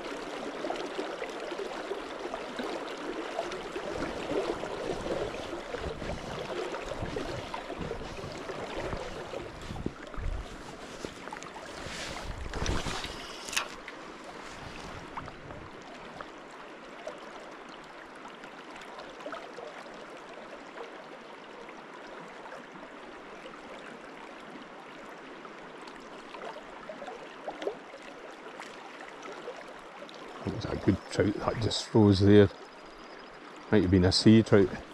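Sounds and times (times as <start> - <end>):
river water rushing: 0.0 - 17.7.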